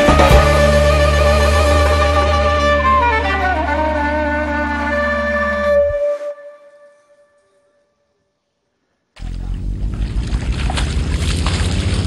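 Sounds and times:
held wind instrument note: 0.0s - 7.9s.

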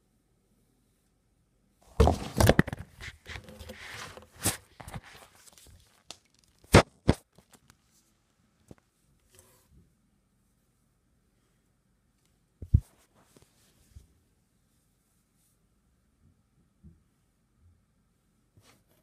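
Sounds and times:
handling thumps and rustling: 1.9s - 7.6s.

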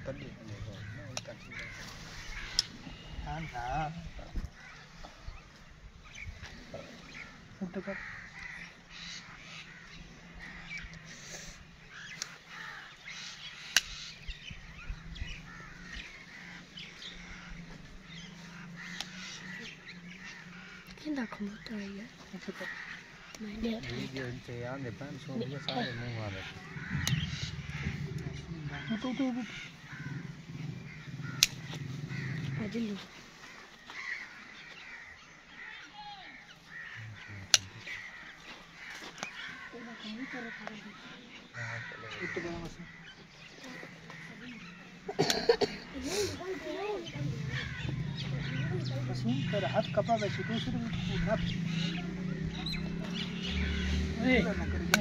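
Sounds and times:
birds calling: 0.0s - 55.0s
crows cawing: 0.0s - 55.0s
hoof nippers snapping: 2.4s - 2.8s, 13.6s - 14.0s, 31.0s - 31.9s, 37.5s - 38.0s.

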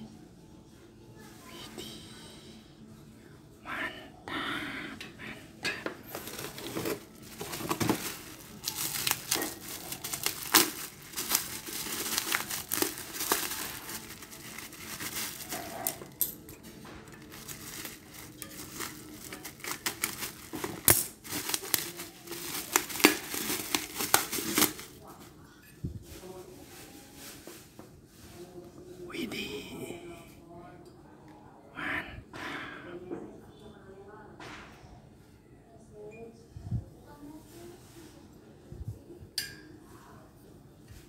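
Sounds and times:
bubble wrap crinkling: 6.0s - 25.3s.

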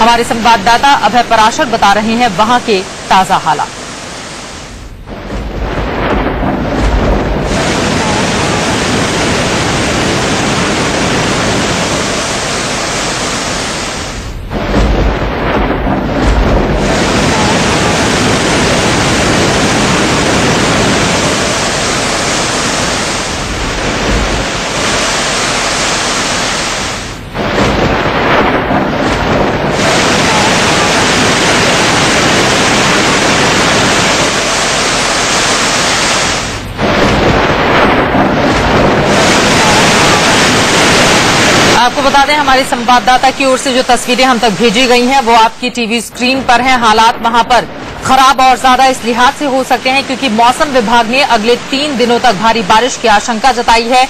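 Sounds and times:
river rushing: 2.3s - 5.3s, 6.6s - 14.8s, 16.0s - 42.5s.

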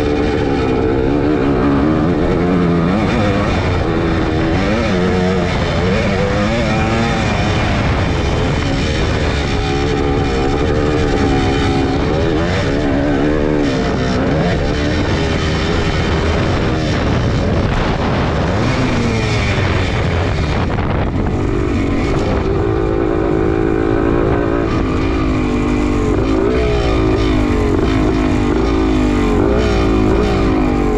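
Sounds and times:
motorcycle engine revving: 0.0s - 30.9s.

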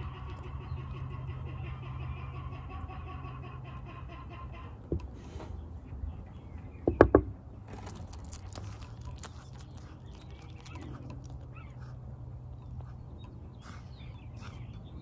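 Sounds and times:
lizard crunching a worm: 7.6s - 15.0s.

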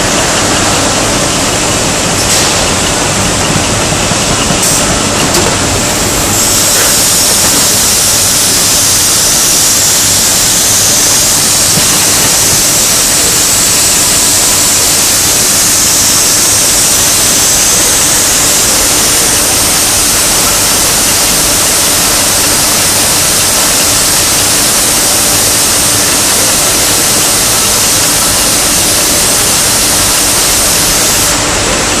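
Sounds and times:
production line running: 0.0s - 32.0s
spray nozzles hissing: 5.8s - 31.4s.

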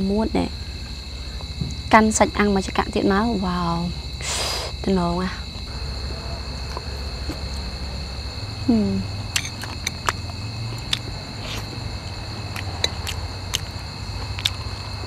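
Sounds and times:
high insect drone: 0.0s - 15.0s
person humming mm: 8.7s - 9.1s.

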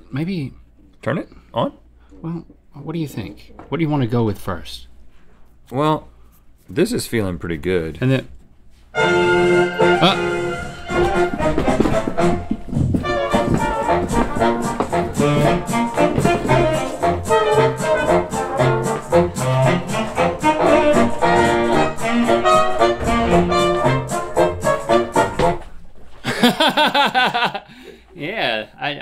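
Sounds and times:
upbeat brass-led music: 8.9s - 25.8s.

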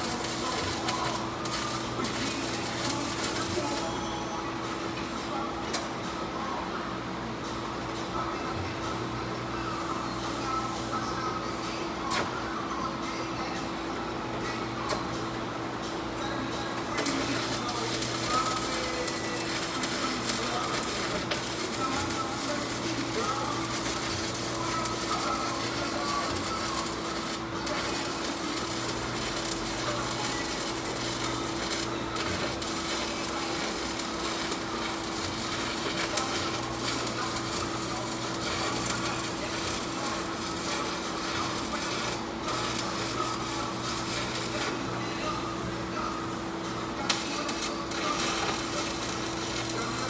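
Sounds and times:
welding arc crackling sizzle: 0.0s - 4.0s, 16.7s - 45.0s, 46.8s - 50.0s
steady hum: 0.0s - 50.0s.

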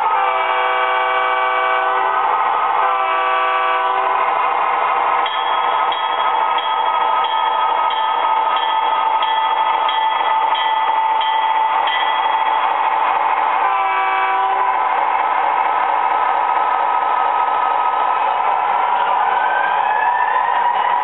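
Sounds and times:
model train diesel engine sound: 0.0s - 21.0s
multi-tone horn blast: 0.2s - 2.2s, 2.8s - 4.2s
bell ringing: 5.2s - 13.1s.

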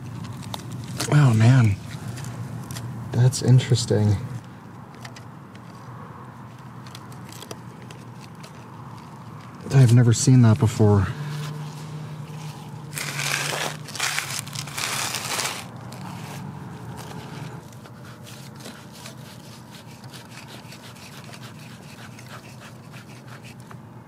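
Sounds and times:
dirt crunching against plastic: 6.6s - 20.2s.

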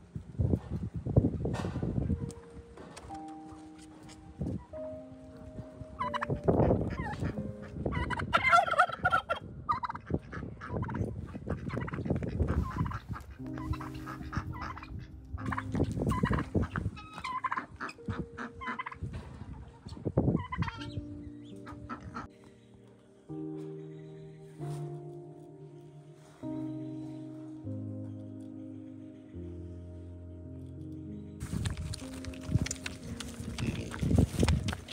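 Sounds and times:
turkey gobbling: 6.0s - 21.0s.

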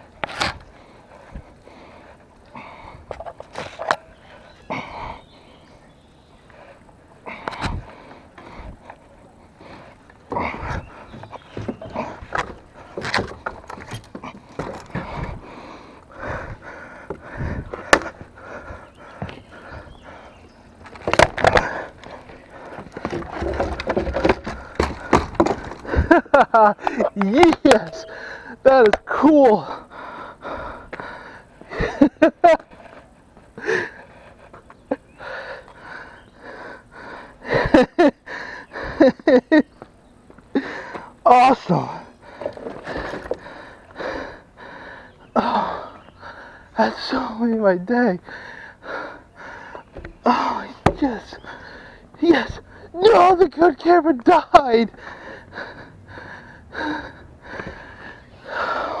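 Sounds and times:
man breathing hard: 0.7s - 26.2s, 27.9s - 28.7s, 29.4s - 32.0s, 33.5s - 39.2s, 40.5s - 41.2s, 41.9s - 47.4s, 48.2s - 53.0s, 54.9s - 59.0s.

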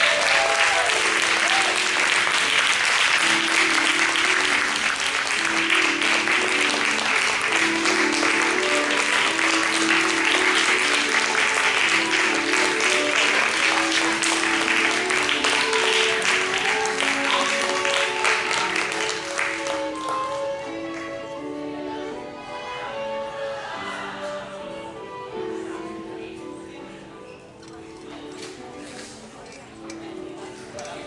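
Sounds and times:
audience applauding: 0.0s - 21.1s
music with held notes: 0.0s - 31.0s.

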